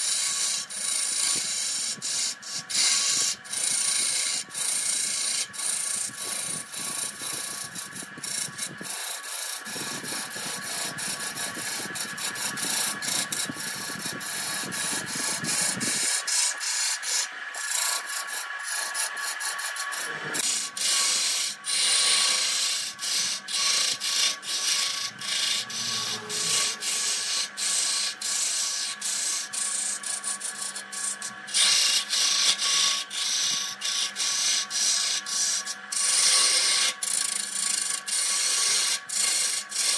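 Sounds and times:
lathe motor whine: 0:00.0 - 0:39.9
turning tool scraping hiss: 0:00.0 - 0:39.9.

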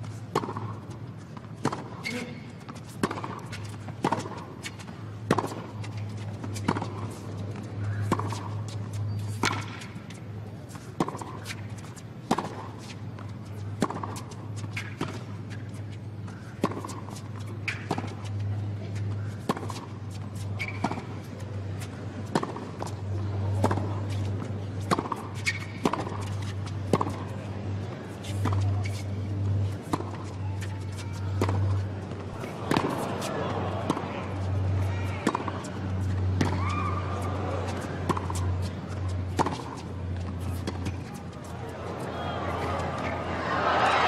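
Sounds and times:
tennis ball hit with rackets: 0:00.3 - 0:00.8, 0:01.6 - 0:27.4, 0:28.2 - 0:43.2.

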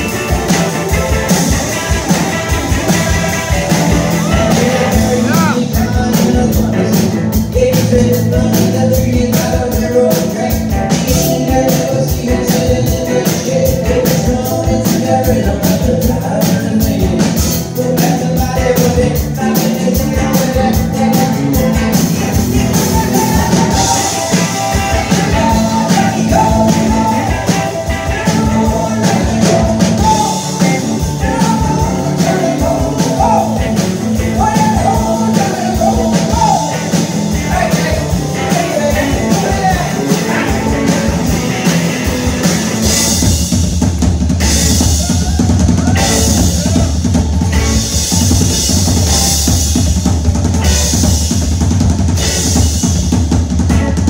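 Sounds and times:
drum solo: 0:00.0 - 0:54.0
fast lead electric guitar: 0:00.0 - 0:54.0
live rock band playing: 0:00.0 - 0:54.0.

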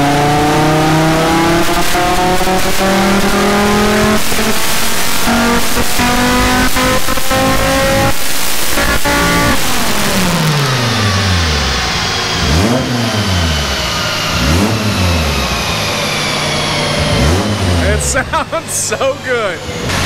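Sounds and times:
car engine revving: 0:00.0 - 0:20.0.

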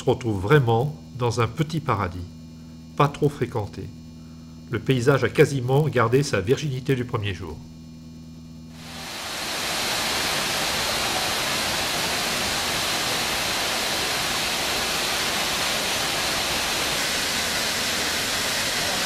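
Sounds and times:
waterfall rushing: 0:08.8 - 0:19.0.

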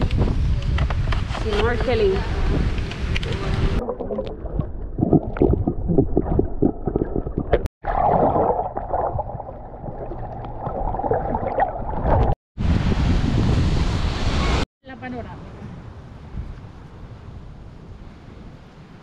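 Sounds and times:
underwater sloshing and bubbling: 0:03.2 - 0:12.4
bubbles gurgling: 0:03.8 - 0:12.4.

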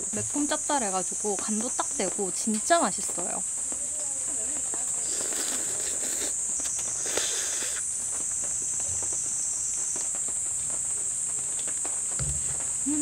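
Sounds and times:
night insects chirring: 0:00.0 - 0:13.0
noodles being slurped: 0:05.2 - 0:06.3.

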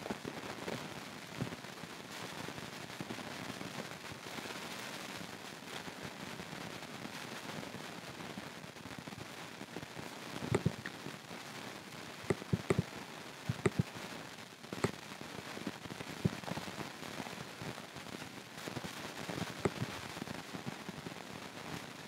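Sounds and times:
steady hiss: 0:00.0 - 0:22.0
mouse and keyboard clicks: 0:10.6 - 0:10.9, 0:13.5 - 0:13.8.

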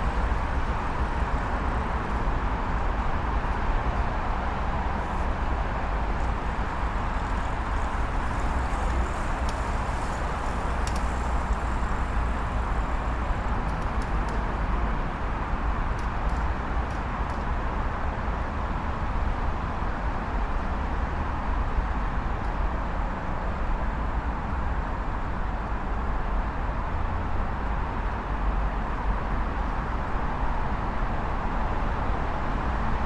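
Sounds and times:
traffic rumble overhead: 0:00.0 - 0:33.0
bicycle ticking: 0:06.3 - 0:14.5.

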